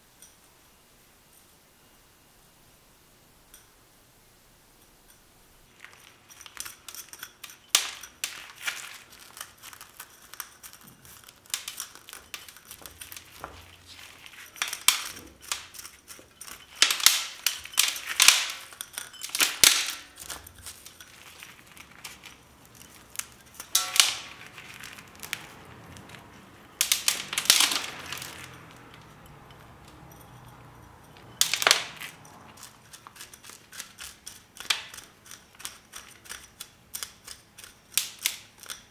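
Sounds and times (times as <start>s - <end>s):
stick scraping roots and soil: 8.1s - 30.3s.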